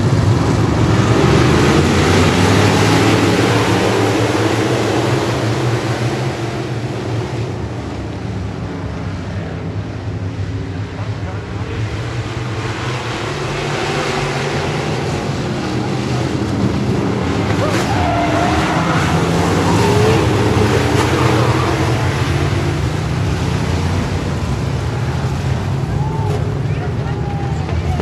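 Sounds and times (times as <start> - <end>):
race car engines droning: 0.0 - 28.0.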